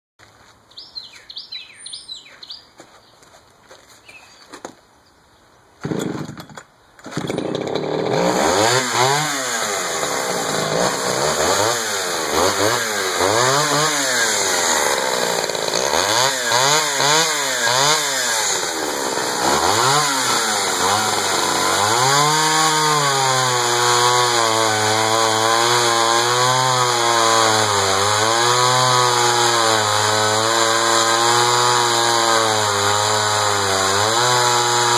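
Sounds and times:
chainsaw cutting wood: 5.8s - 34.9s
chainsaw revving: 5.8s - 34.9s.

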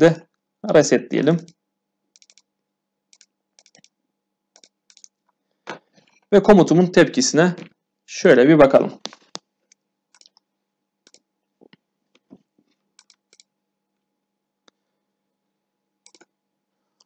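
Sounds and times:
computer mouse clicks: 1.4s - 2.5s, 3.1s - 4.0s, 4.6s - 5.2s, 9.1s - 13.5s, 16.0s - 16.3s.

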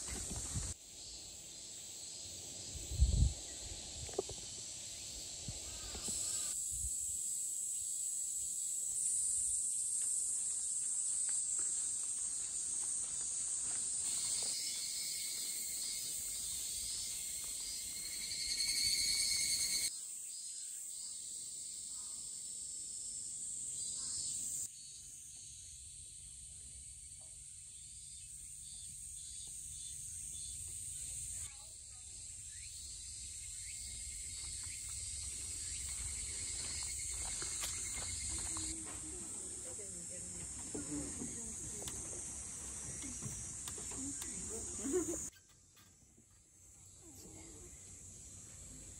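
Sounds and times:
lower buzzing insect song: 0.0s - 48.9s
insects shrilling: 14.1s - 19.9s.

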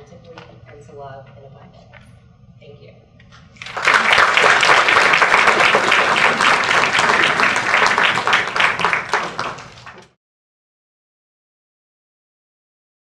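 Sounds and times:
audience applauding: 3.6s - 10.2s.

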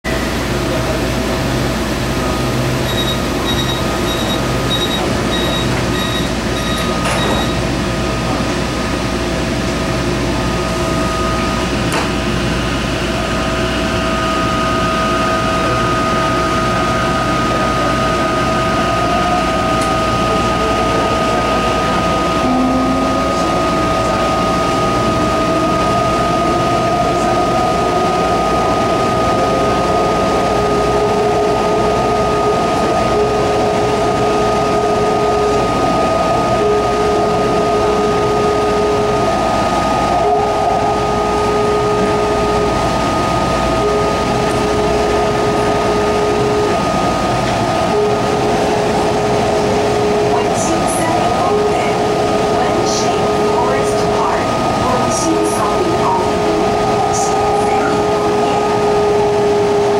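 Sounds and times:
train running hum: 0.0s - 59.9s
train motors whining: 0.2s - 59.9s
high warning beeps: 2.8s - 7.6s.

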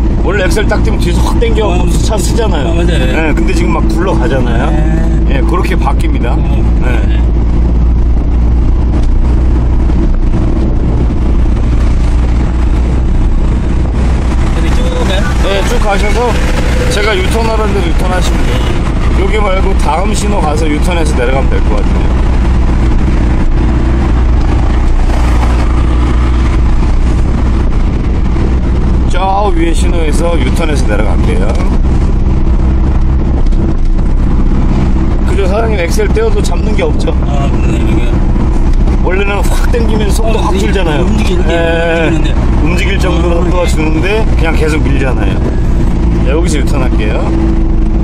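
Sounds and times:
truck engine and road rumble: 0.0s - 48.0s.

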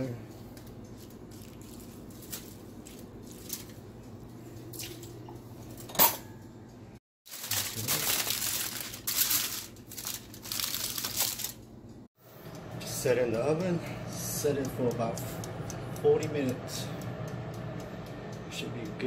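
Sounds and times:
aluminium foil crinkling: 0.6s - 3.9s, 7.3s - 11.7s.

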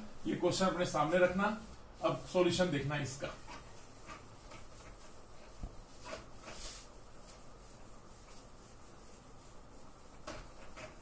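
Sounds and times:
rubbing on a whiteboard: 0.0s - 11.0s
swipe on a whiteboard: 2.6s - 11.0s.

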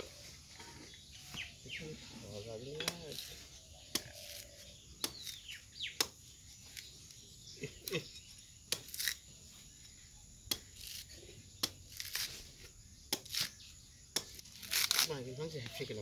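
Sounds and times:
knife chopping coconut husk: 2.8s - 6.2s, 8.6s - 9.2s, 10.4s - 12.4s, 13.0s - 15.1s
husk fibre tearing: 8.7s - 9.2s, 10.5s - 13.6s, 14.2s - 15.1s.

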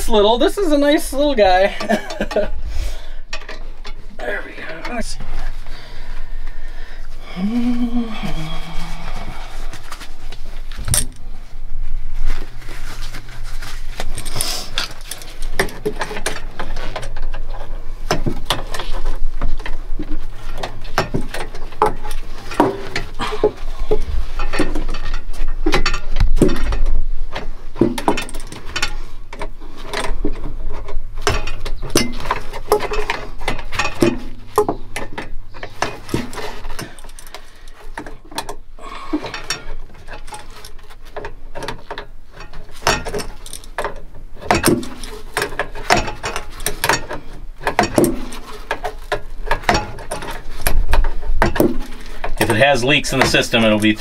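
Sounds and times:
hand tools clanking on metal: 1.6s - 5.2s, 27.8s - 54.0s.

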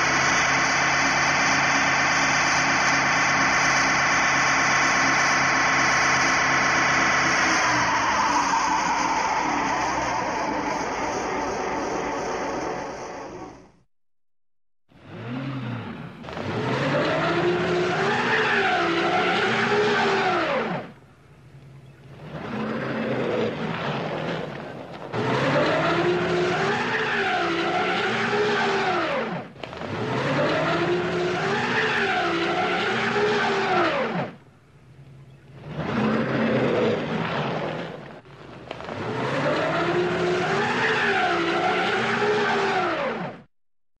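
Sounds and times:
car engine revving: 0.0s - 13.8s, 15.0s - 38.2s, 38.8s - 43.5s
tyres skidding on ice: 15.1s - 21.0s, 21.6s - 34.4s, 35.0s - 43.4s.

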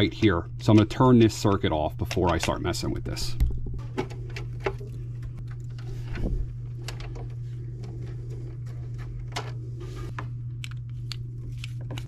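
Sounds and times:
steady low hum: 0.0s - 12.0s
hands handling wires clicking: 3.9s - 9.6s, 10.2s - 12.0s.

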